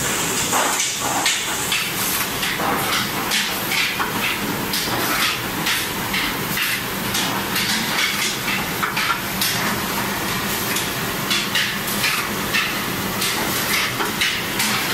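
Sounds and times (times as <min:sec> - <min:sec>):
machinery hiss: 0:00.0 - 0:03.8.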